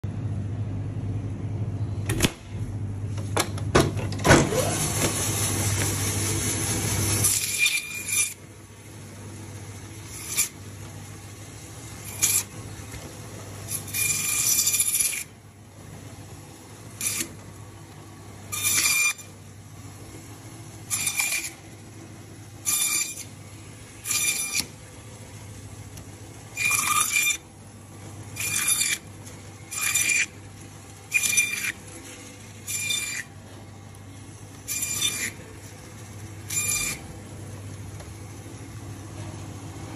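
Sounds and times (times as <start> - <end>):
saw blade rasping through fish: 31.1 - 31.8.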